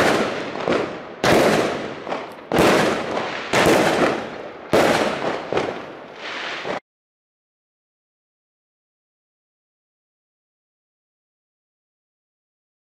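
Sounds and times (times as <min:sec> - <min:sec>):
fireworks bursting with loud bangs: 0:00.0 - 0:06.8.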